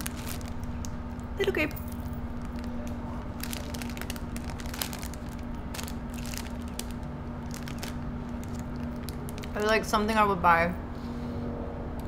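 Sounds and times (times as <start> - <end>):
plastic bag crinkling: 0.0 - 9.9.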